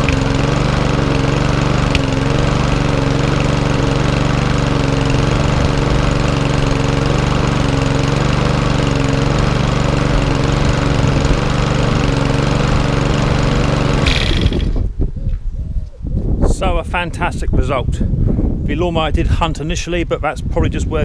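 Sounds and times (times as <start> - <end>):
lawnmower engine running: 0.0 - 15.0
wind rumbling on microphone: 14.1 - 21.0.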